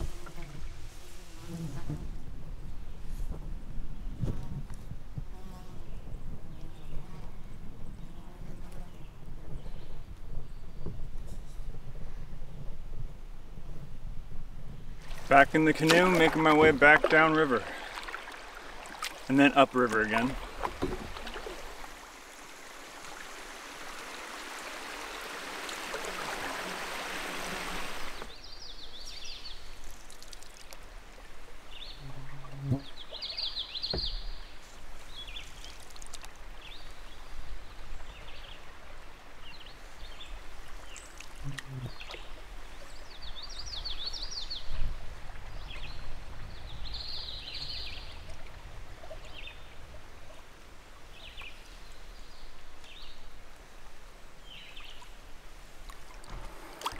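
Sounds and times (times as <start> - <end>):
running water rushing: 15.0 - 28.4, 53.3 - 56.9.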